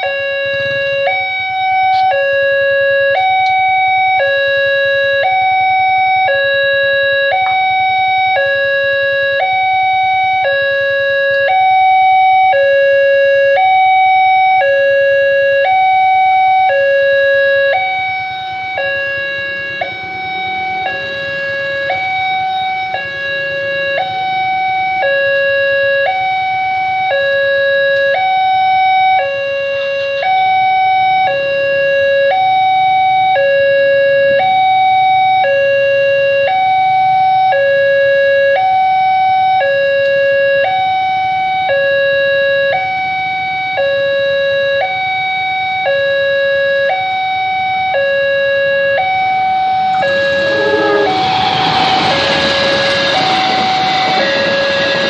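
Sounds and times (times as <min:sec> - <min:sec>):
level-crossing two-tone alarm: 0:00.0 - 0:55.0.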